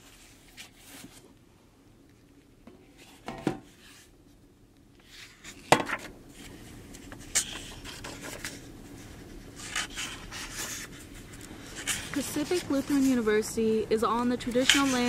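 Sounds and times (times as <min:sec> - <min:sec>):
pages rustling: 0:00.0 - 0:01.3, 0:05.0 - 0:13.7, 0:14.4 - 0:15.0.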